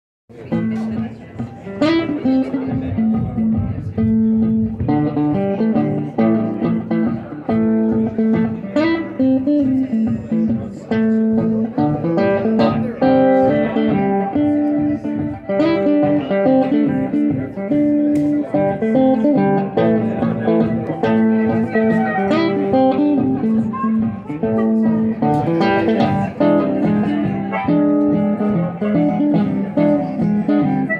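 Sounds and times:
acoustic guitar strumming: 0.3s - 30.9s
harmonica playing long notes: 21.4s - 22.6s.

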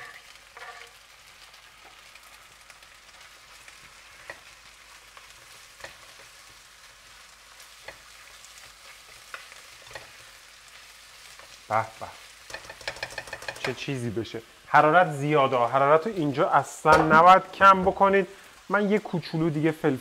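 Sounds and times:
chicken sizzling in hot oil: 0.0s - 20.0s
pot being stirred: 12.2s - 13.8s
utensil knocking against pot: 16.9s - 17.3s.

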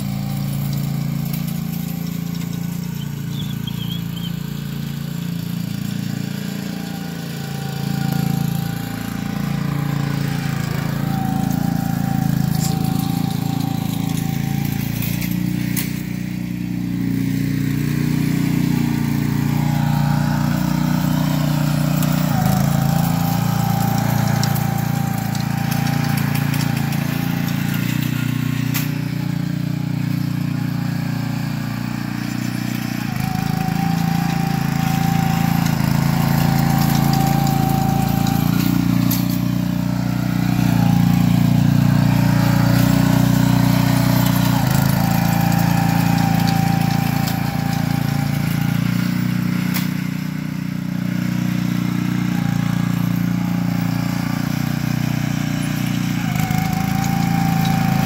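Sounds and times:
small engine running: 0.0s - 58.0s.

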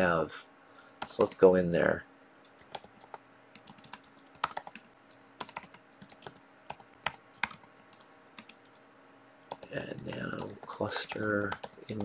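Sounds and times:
typing on a keyboard: 2.4s - 8.6s, 9.5s - 12.0s.

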